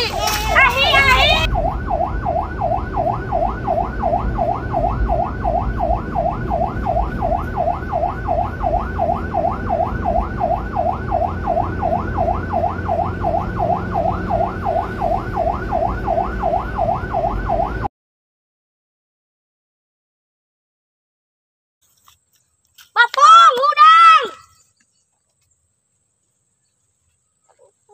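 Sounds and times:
electronic yelp siren: 0:00.0 - 0:17.9.

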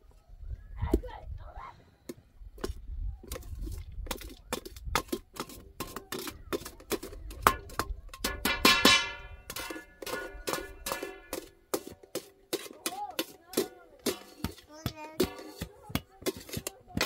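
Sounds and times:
metal ladle scraping steel pot: 0:04.8 - 0:16.7
ringing metal clang: 0:07.5 - 0:11.6.

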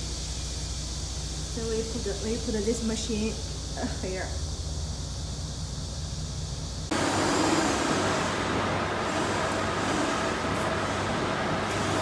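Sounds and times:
fence making machine running: 0:06.9 - 0:12.0.

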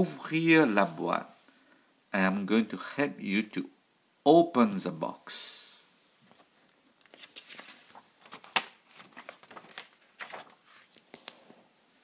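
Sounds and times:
paper crinkling and tearing: 0:07.0 - 0:11.4.

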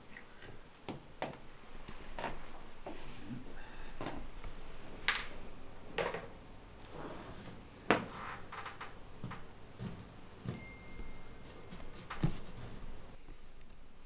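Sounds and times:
faint thin high tone: 0:10.5 - 0:11.4.

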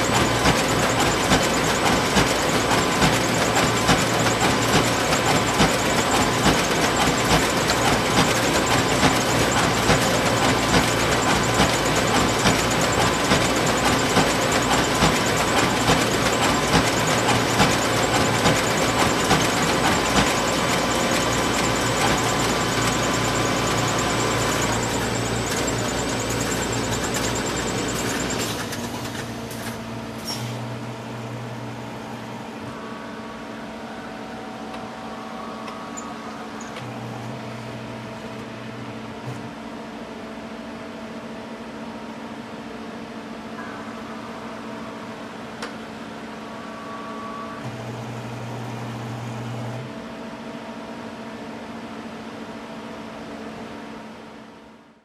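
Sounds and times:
machine hum: 0:00.0 - 0:55.0.

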